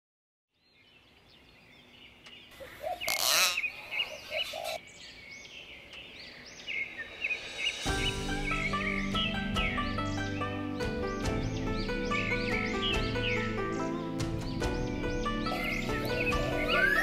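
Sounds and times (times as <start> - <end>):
birds whistling: 0.7 - 17.0
harsh bird call: 2.5 - 10.5, 15.0 - 17.0.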